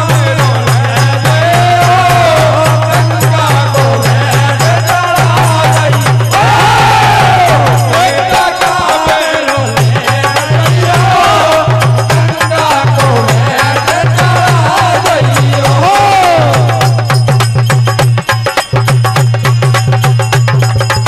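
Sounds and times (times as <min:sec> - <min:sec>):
people singing: 0:00.0 - 0:17.6
fast drum beat: 0:00.0 - 0:21.0
hand cymbals jingling: 0:07.6 - 0:21.0.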